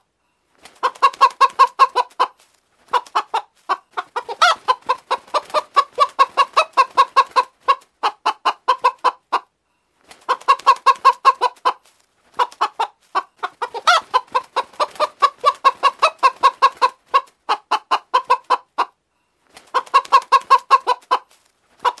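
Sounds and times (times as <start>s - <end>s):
hen clucking: 0.8s - 9.6s, 10.2s - 19.0s, 19.6s - 22.0s.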